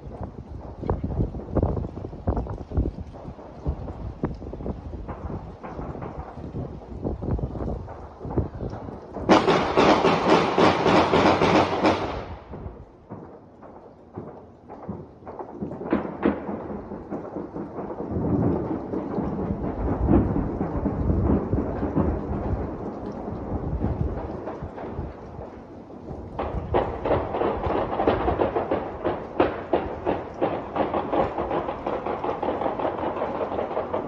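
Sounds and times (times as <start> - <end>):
echoing rumble: 0.0 - 34.0
distant gunfire: 9.2 - 12.6, 26.4 - 34.0.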